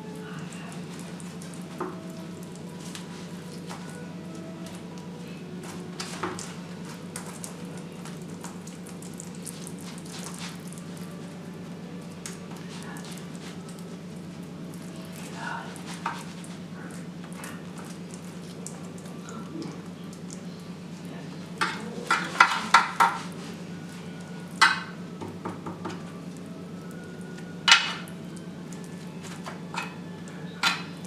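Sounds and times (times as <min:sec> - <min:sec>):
metal spoon clinking against dishes: 0:30.6 - 0:31.0.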